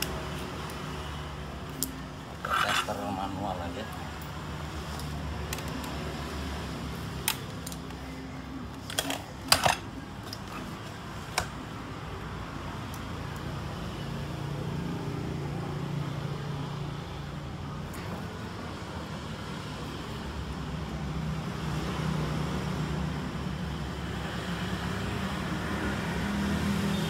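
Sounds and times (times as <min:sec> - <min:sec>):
sharp clicks of tools and parts: 0:08.8 - 0:10.5.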